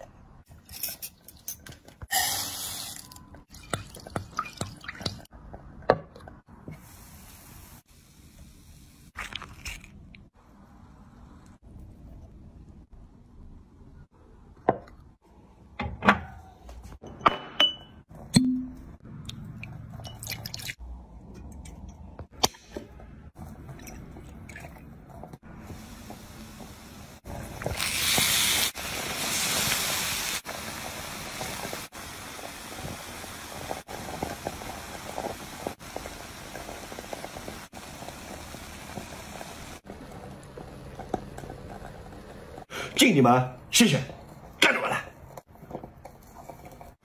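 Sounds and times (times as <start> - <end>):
rice pot hissing: 25.6 - 39.9.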